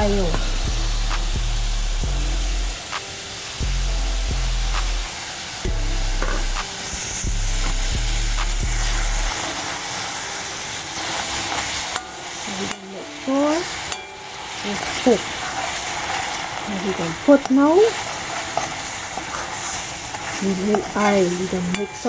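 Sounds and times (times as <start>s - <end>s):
chicken sizzling in pot: 0.0s - 22.0s.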